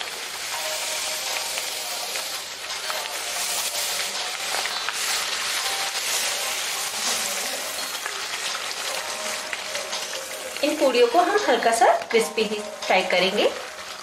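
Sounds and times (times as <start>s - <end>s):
oil sizzling and crackling: 0.0s - 14.0s.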